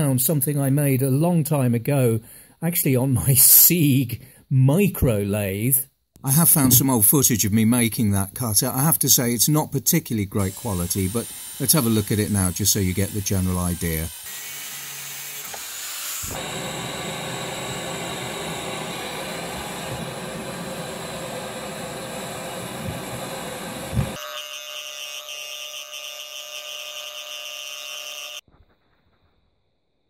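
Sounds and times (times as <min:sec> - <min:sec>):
angle grinder cutting steel: 0:10.4 - 0:28.4.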